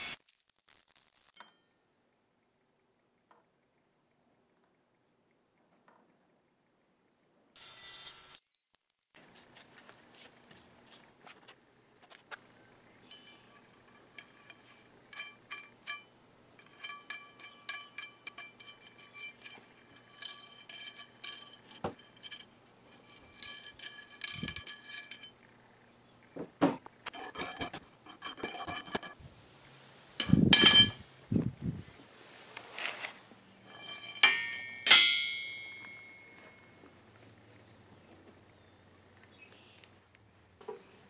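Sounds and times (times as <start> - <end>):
steel rod ringing: 13.0 - 25.4, 30.2 - 31.0, 33.6 - 36.8.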